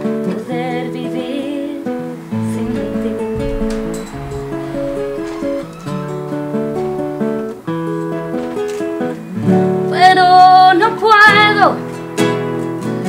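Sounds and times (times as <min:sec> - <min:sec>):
woman singing: 0:00.2 - 0:05.0
acoustic guitar picked chords: 0:02.4 - 0:07.7.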